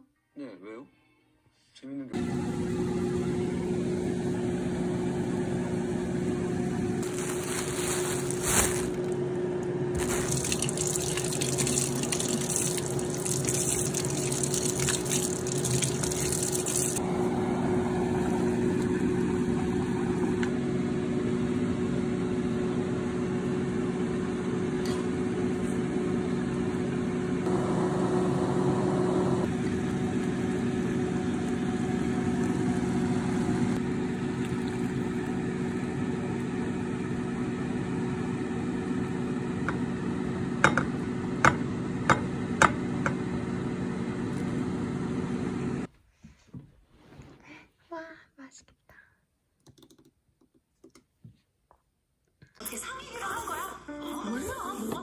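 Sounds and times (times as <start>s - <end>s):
water boiling in a pot: 9.9s - 20.4s, 29.4s - 42.8s
hissing and splashing in pot: 10.0s - 17.0s.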